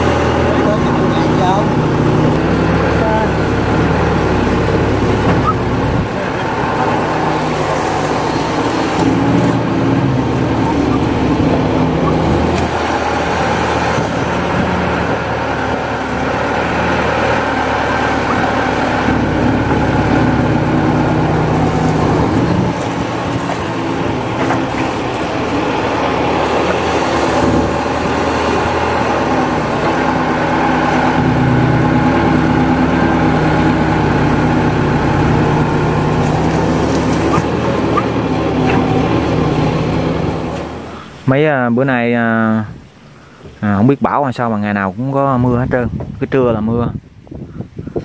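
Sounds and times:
bucket digging and dumping mud: 0.0 - 41.1
excavator diesel engine running: 0.0 - 44.2.

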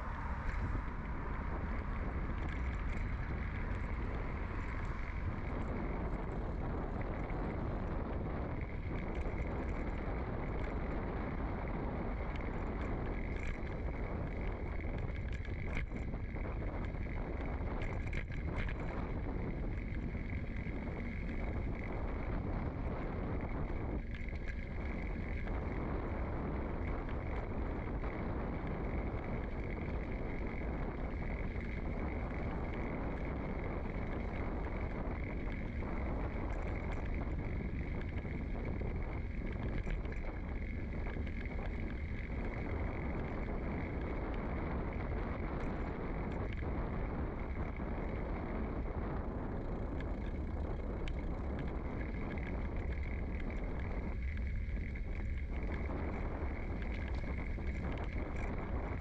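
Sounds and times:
bicycle tyres rumbling on asphalt: 0.0 - 59.0
low wind noise: 0.0 - 59.0
faint clicks: 0.4 - 59.0.

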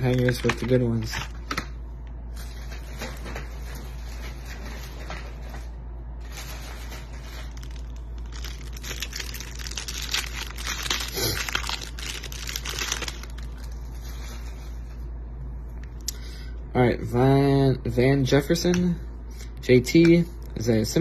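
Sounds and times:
plastic wrapper crinkling and tearing: 0.0 - 1.7, 6.2 - 14.8.

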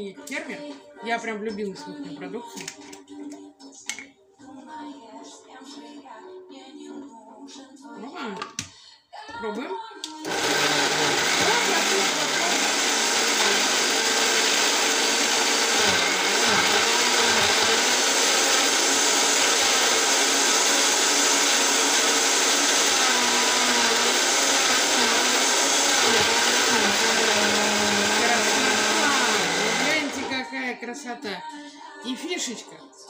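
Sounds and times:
blender motor running: 10.2 - 30.5.

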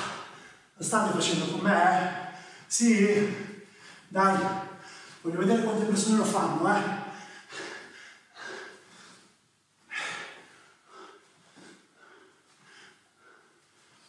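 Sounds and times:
man breathing hard: 2.1 - 5.2, 7.0 - 14.0.

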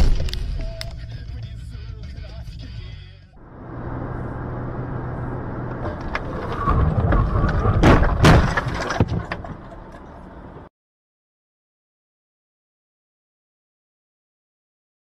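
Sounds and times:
car road noise: 3.4 - 10.7
heavy rumble: 3.4 - 10.7
car crash crunching knocks: 5.7 - 10.7.

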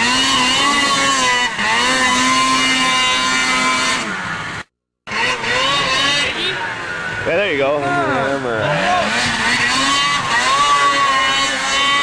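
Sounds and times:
snowmobile engine revving: 0.0 - 12.0.

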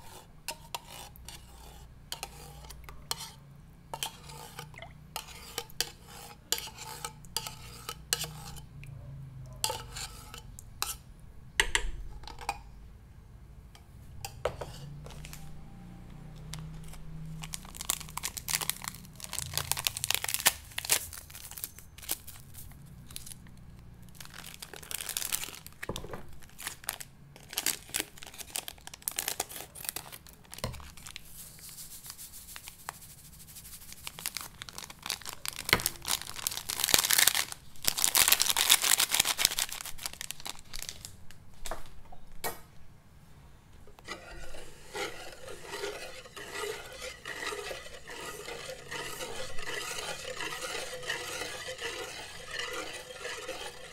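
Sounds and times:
whisk stirring in metal pot: 0.0 - 8.7, 9.6 - 11.0, 14.4 - 15.6, 44.0 - 53.9
plastic sachet crinkling and tearing: 16.5 - 23.4, 24.1 - 31.4, 33.9 - 41.4.

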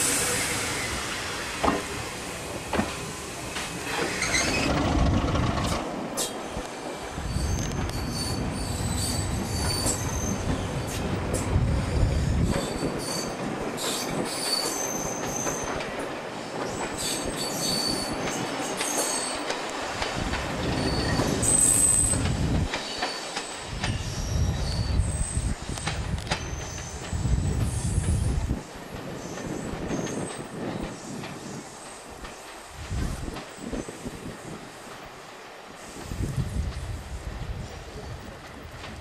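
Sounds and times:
train wheels squealing: 0.0 - 1.8, 3.0 - 19.9, 20.6 - 28.5, 29.1 - 32.5
train rumble: 0.0 - 39.0
wheels clicking over rail joints: 2.7 - 6.4.

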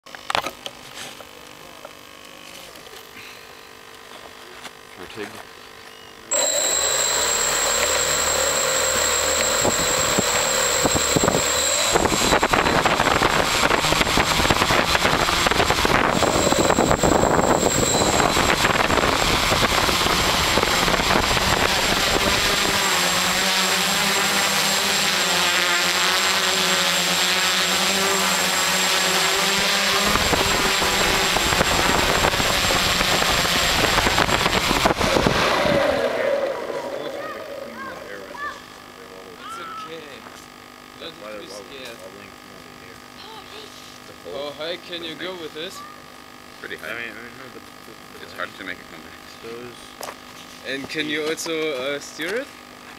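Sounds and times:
thin high whine: 4.9 - 43.2
low humming tone: 5.6 - 39.8
drone propellers whirring: 6.3 - 40.0.

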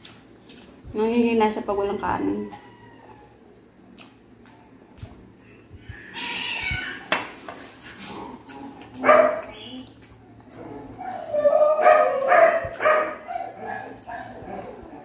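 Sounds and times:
pet crying: 5.9 - 7.2.

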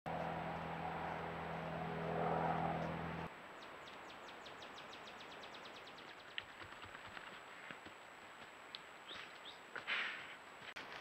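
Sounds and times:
low mechanical hum: 0.1 - 3.3.

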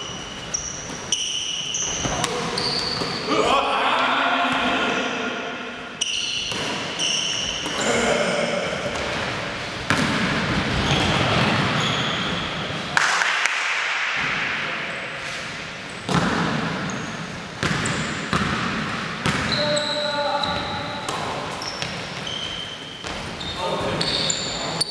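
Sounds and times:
sneakers squeaking: 0.0 - 3.6, 4.5 - 13.0, 14.8 - 24.9
players calling out: 1.7 - 6.4, 7.0 - 9.3
basketball bouncing on court: 9.9 - 12.3, 16.1 - 22.4.

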